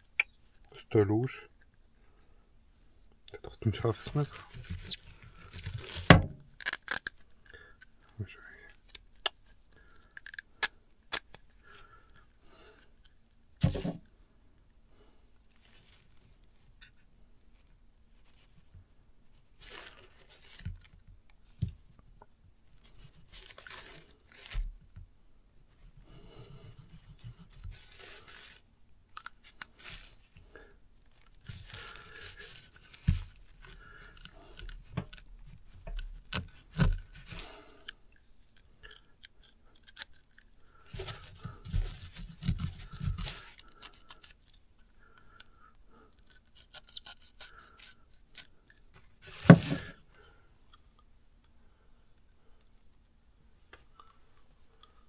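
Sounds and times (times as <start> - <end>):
knife scraping and cutting: 36.3 - 44.6, 46.2 - 50.0.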